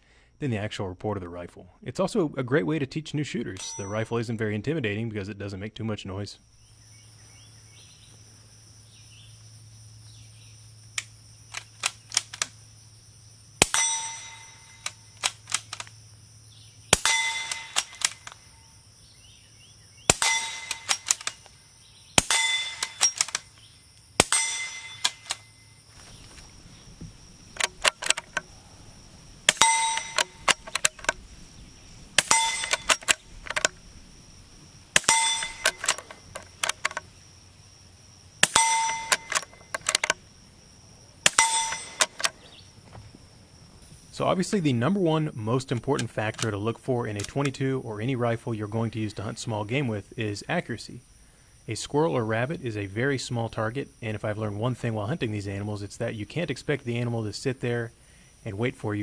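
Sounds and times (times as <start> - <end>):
bullet clanging on steel: 3.5 - 4.2, 13.6 - 16.0, 17.0 - 18.5, 20.1 - 21.5, 22.2 - 25.7, 27.6 - 28.5, 29.5 - 31.2, 32.2 - 33.8, 35.0 - 37.1, 38.4 - 40.2, 41.3 - 42.5
muffled rifle shots: 13.6 - 16.0, 16.9 - 18.4, 20.1 - 21.5, 22.2 - 23.5, 24.2 - 25.4, 27.6 - 28.4, 29.4 - 31.2, 32.1 - 33.8, 34.9 - 37.0, 38.4 - 40.1, 41.2 - 42.4.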